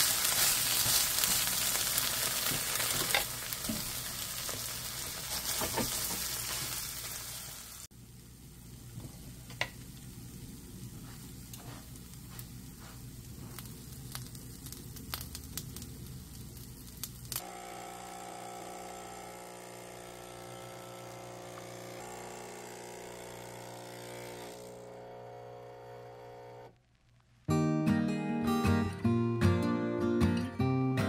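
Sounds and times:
toast sizzling in a frying pan: 0.0 - 24.4
espresso machine pump buzzing: 17.4 - 26.8
guitar music: 27.5 - 31.0.

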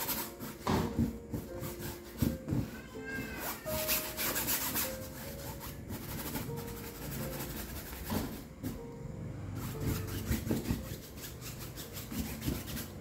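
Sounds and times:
paintbrush scrubbing canvas: 3.4 - 8.4, 9.6 - 13.0.

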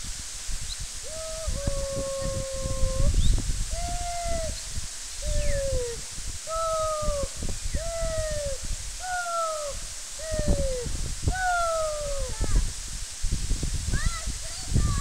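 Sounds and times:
person calling out in high cries: 1.1 - 3.1, 3.7 - 4.5, 5.2 - 12.7.

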